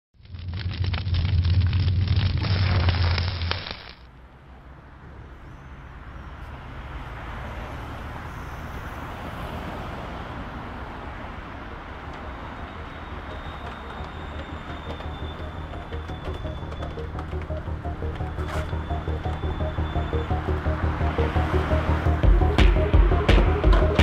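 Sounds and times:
cars passing: 4.0s - 24.0s
intro sound effect with deep hum: 15.0s - 24.0s.

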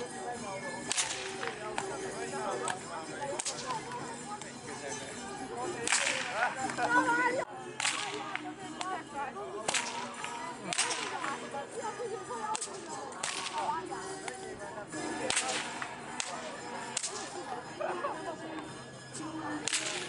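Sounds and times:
herding whip cracking: 0.9s - 1.9s, 3.4s - 3.8s, 5.8s - 6.8s, 7.8s - 8.3s, 9.7s - 11.4s, 12.6s - 13.7s, 15.3s - 17.4s, 19.6s - 20.0s.

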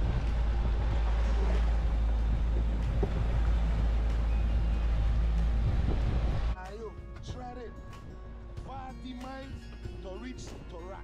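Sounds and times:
outboard motors running: 0.0s - 6.6s
rush of boat wake: 0.0s - 6.6s
wind buffeting microphone: 0.0s - 6.6s.

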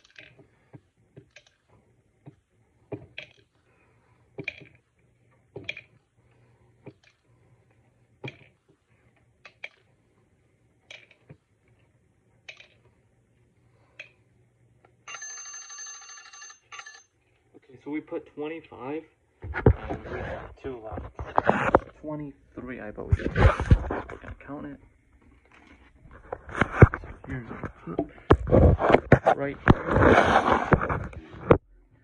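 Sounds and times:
electronic timer alarm ringing: 15.0s - 17.1s.

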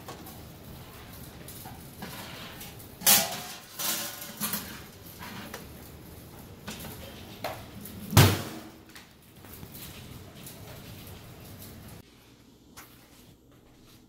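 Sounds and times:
metal trays clattering and scraping: 0.0s - 8.9s.

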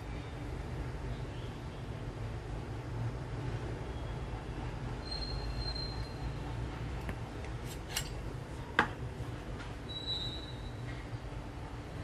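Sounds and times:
metal-on-metal squeal: 5.0s - 6.4s.

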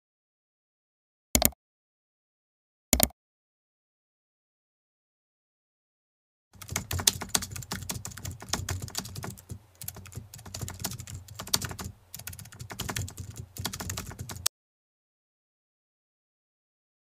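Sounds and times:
keyboard typing: 1.4s - 1.6s, 6.6s - 14.5s.

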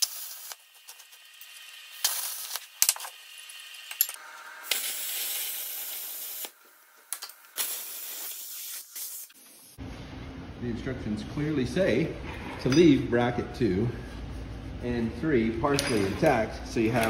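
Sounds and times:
plasma cutter hissing: 0.0s - 2.8s, 4.7s - 6.6s, 7.6s - 9.8s.

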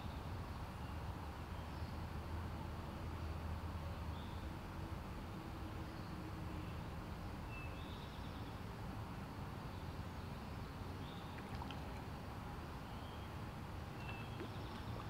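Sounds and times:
stream rushing: 11.3s - 12.6s.

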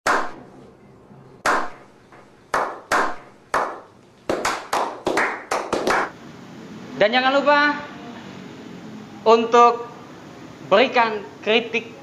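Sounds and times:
group clapping in unison: 0.1s - 0.4s, 1.4s - 1.8s, 2.5s - 6.2s.

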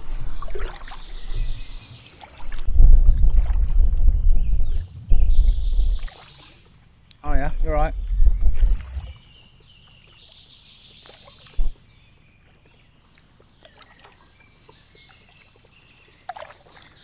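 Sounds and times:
paddle splashing water: 0.0s - 6.9s, 8.0s - 9.3s, 12.4s - 17.0s
low rumble: 2.5s - 6.1s, 7.3s - 9.3s.

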